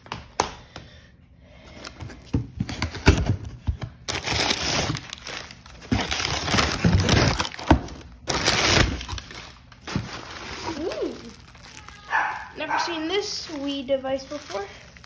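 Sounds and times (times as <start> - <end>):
packing paper crinkling: 4.0 - 15.0.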